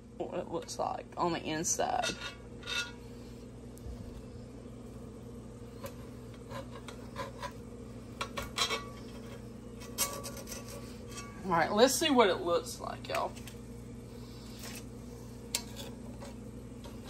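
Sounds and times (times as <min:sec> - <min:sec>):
blade scraping metal pan: 0:08.2 - 0:11.5.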